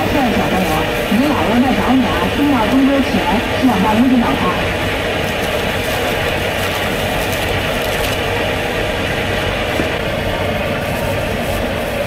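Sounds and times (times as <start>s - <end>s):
market crowd hubbub: 0.0s - 12.0s.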